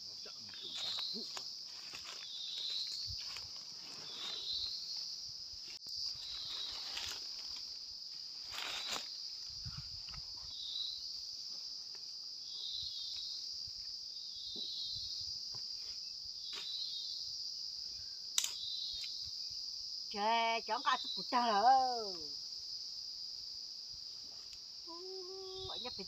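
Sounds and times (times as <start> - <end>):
insects droning: 0.0 - 26.0
rustles through leaf litter: 0.6 - 4.8, 6.1 - 9.1.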